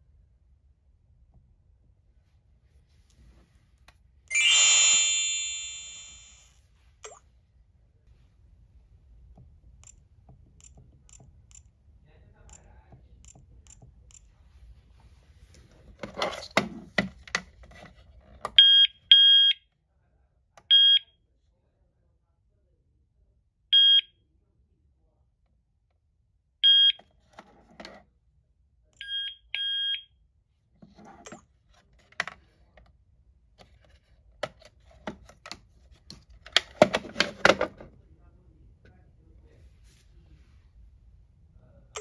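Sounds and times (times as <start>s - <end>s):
electronic alarm panel beeps: 4.3s - 6.4s, 26.6s - 27.0s, 29.0s - 30.0s
siren double beep: 4.3s - 6.5s.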